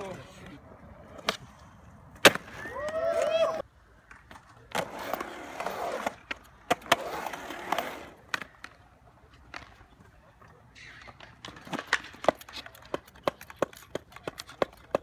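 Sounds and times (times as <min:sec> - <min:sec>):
skateboard wheels rolling on concrete: 0:00.0 - 0:15.0
skateboard clacking on coping: 0:10.8 - 0:15.0.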